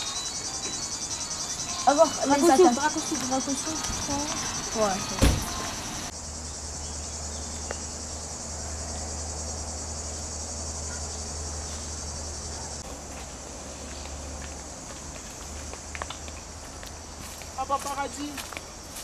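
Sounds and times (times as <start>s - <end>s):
insects shrilling: 0.0s - 12.8s
sharp thump: 5.2s - 5.6s.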